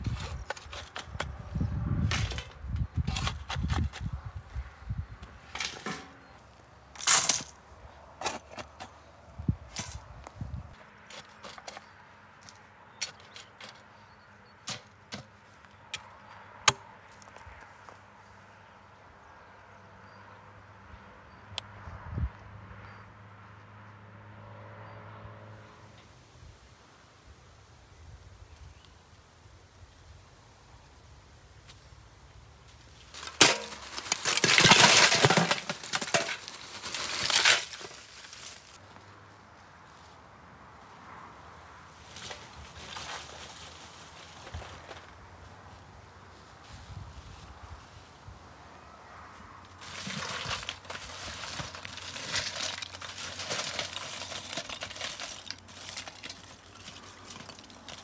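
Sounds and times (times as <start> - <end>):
metal shovel digging stony dirt: 0.0 - 4.2, 5.4 - 6.3, 6.9 - 7.6, 8.2 - 9.0, 9.6 - 10.3, 11.0 - 13.9, 33.1 - 38.8, 42.1 - 45.0, 49.8 - 58.0
charcoal clattering onto metal buckets: 2.1 - 3.4, 5.5 - 6.3, 7.0 - 7.6, 33.1 - 38.8, 49.8 - 58.0.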